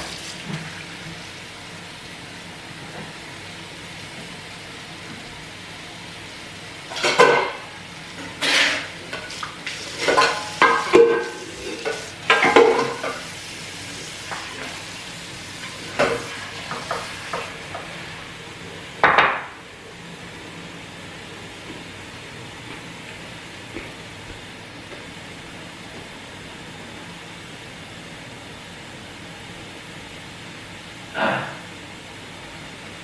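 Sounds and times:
dishes clattering: 0:06.9 - 0:07.6, 0:10.0 - 0:13.2.

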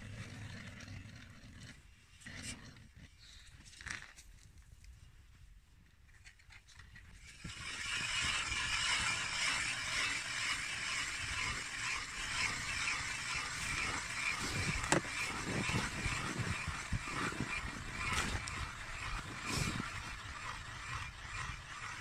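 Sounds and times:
ice auger scraping through ice: 0:07.2 - 0:22.0.

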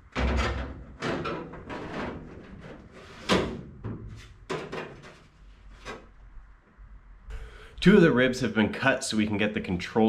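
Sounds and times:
parts knocking and clattering: 0:00.0 - 0:06.2.

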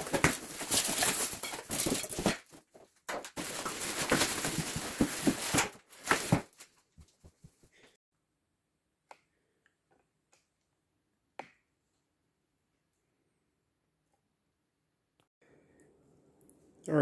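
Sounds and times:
plastic wrap crinkling: 0:00.0 - 0:02.6, 0:03.2 - 0:06.8
cardboard being handled and scraped: 0:00.0 - 0:07.7.

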